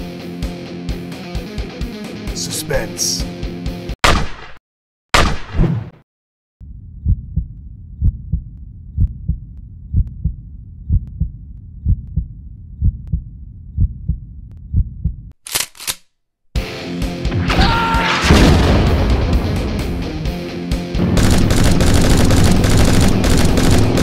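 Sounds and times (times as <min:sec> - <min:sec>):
heartbeat thumps: 0:06.9 - 0:15.3.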